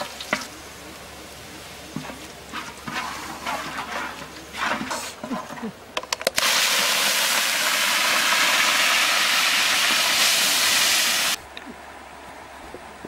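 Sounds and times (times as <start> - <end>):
liquid sizzling in hot wok: 1.2 - 4.9, 6.4 - 11.4
wooden spoon stirring: 1.9 - 5.8.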